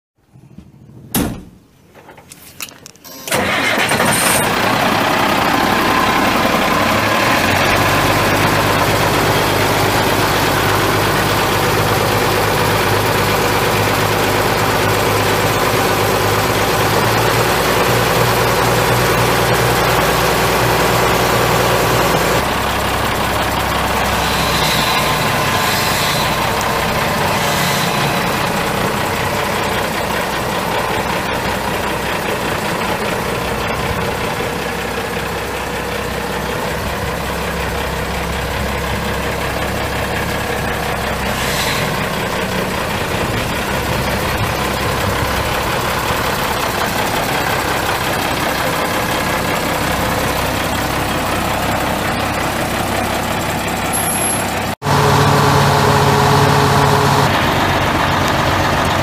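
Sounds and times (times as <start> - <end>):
diesel engine cranking: 2.2 - 59.0
diesel engine idling: 3.2 - 59.0.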